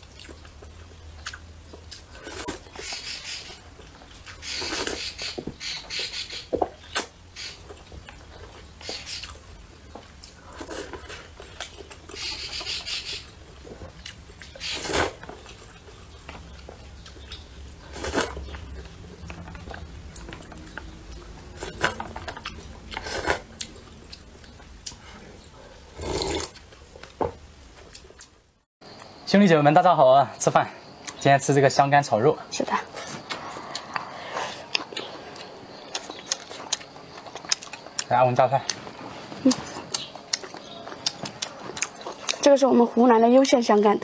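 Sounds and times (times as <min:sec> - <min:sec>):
person slurping noodles: 0:25.8 - 0:26.6.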